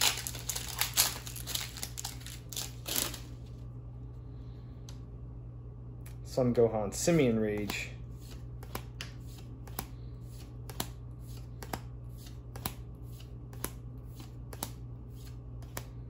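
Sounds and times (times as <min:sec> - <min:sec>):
low steady hum: 0:00.0 - 0:16.0
trading cards flipped by hand: 0:07.5 - 0:16.0.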